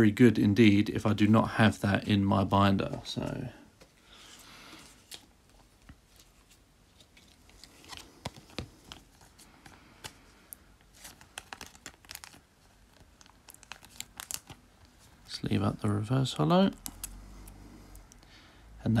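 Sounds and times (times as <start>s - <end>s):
cards rustling: 2.8s - 15.7s.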